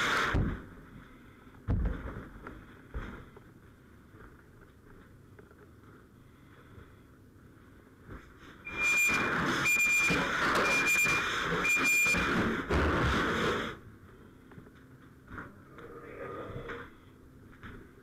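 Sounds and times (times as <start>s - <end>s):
short high-pitched beeps: 8.7s - 12.3s.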